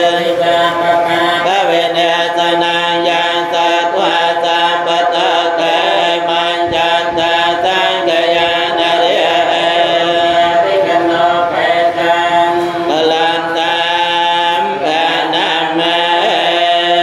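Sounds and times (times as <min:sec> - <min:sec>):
monks chanting: 0:00.0 - 0:17.0.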